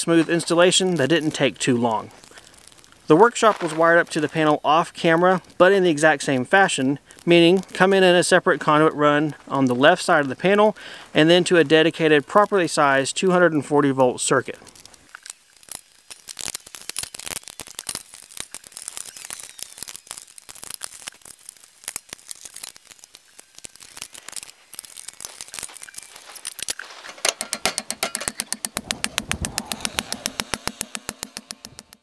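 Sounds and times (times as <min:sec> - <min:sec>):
metal panel clicks and rattles: 0:27.1 - 0:29.5
hammer striking metal rod: 0:27.2 - 0:32.0.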